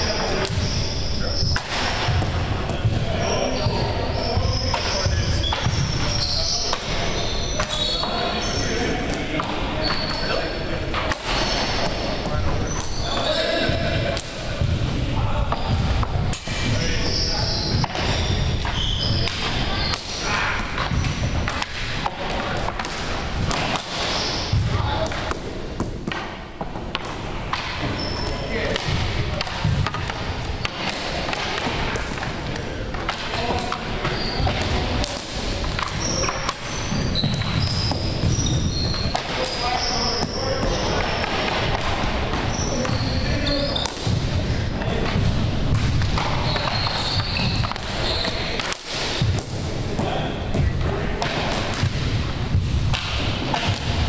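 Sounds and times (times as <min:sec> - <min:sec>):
shoe squeaks: 0:00.0 - 0:13.9, 0:16.6 - 0:21.8, 0:23.5 - 0:25.0, 0:27.8 - 0:28.8, 0:33.4 - 0:41.4, 0:42.4 - 0:44.0, 0:44.9 - 0:48.6
hockey sticks hitting plastic ball: 0:01.4 - 0:03.8, 0:04.4 - 0:08.2, 0:10.8 - 0:54.0.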